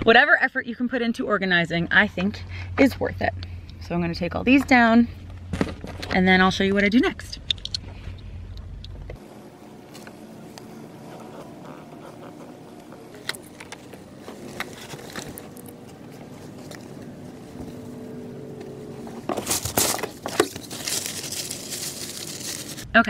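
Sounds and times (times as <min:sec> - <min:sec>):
cloth rustling: 0:18.7 - 0:22.9.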